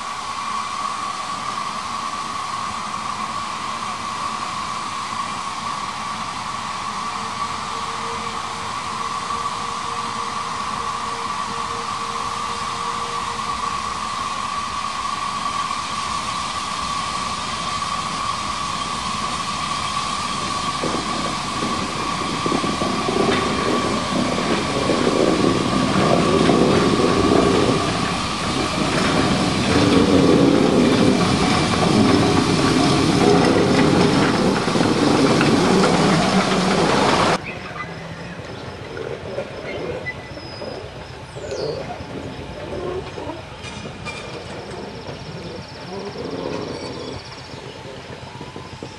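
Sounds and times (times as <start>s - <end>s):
steam hissing: 0.0s - 48.9s
locomotive running gear clattering: 18.8s - 48.9s.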